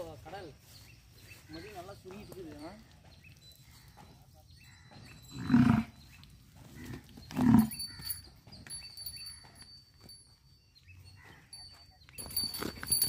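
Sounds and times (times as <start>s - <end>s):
bull calling: 4.9s - 6.0s, 6.6s - 8.4s.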